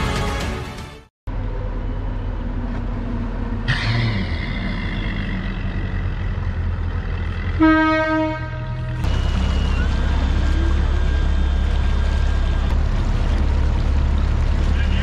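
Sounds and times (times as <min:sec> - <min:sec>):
outboard motors idling: 0:02.5 - 0:15.0
short horn blast: 0:07.6 - 0:11.1.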